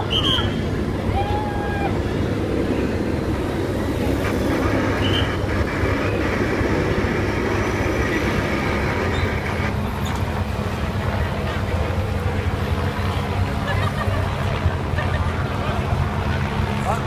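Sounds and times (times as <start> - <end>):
high whistle-like tone: 0.0 - 0.6, 5.0 - 5.4
helicopter hovering: 0.0 - 17.0
motorcycle engines rumbling: 0.0 - 17.0.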